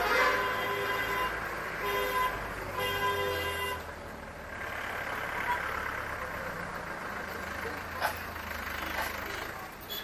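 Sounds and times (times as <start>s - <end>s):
vehicle horns honking: 0.0s - 3.9s
vehicle engines humming: 0.0s - 10.0s.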